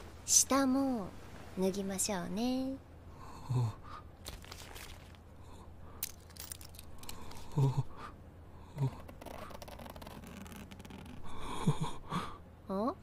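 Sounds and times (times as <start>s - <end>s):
clothing rustling: 4.2s - 5.3s
belt being undone: 9.0s - 11.2s.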